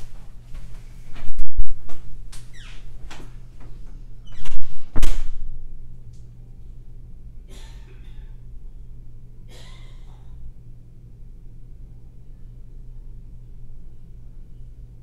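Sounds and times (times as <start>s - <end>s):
steady low hum: 0.0s - 15.0s
loud thumps: 4.4s - 5.6s.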